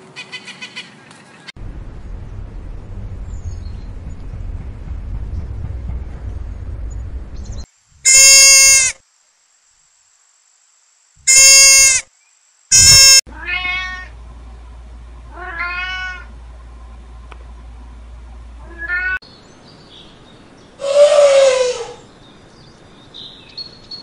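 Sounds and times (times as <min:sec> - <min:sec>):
cat meowing: 0:12.7 - 0:14.1, 0:15.3 - 0:16.3, 0:18.6 - 0:19.2.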